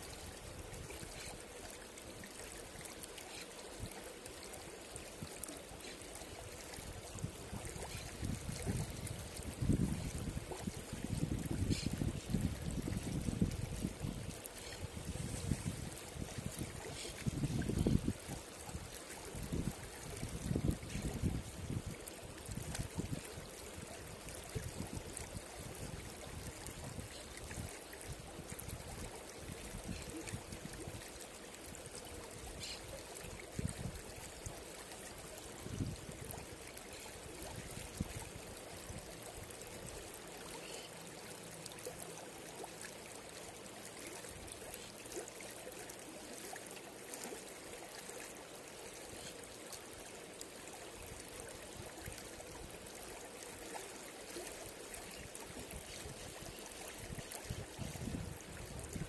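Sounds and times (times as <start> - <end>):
river rippling over rocks: 21.6 - 59.0.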